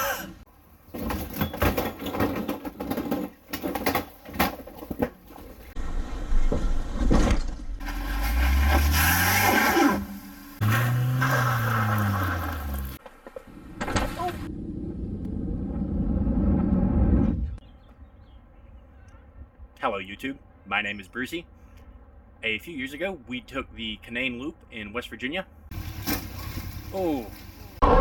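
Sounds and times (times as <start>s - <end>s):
knocking and scraping: 0.9s - 7.8s
vehicle engines revving: 7.8s - 17.6s.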